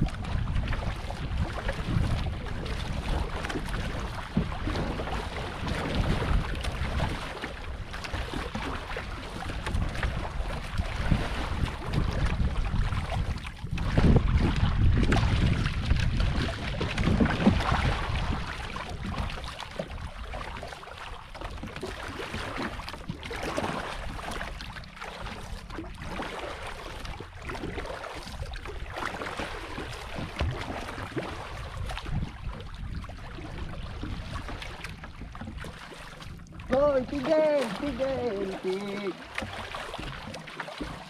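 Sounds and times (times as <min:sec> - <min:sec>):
wind buffeting microphone: 0:00.0 - 0:20.2, 0:28.3 - 0:39.1
paddle strokes in water: 0:00.0 - 0:41.0
water washing along hull: 0:00.0 - 0:41.0.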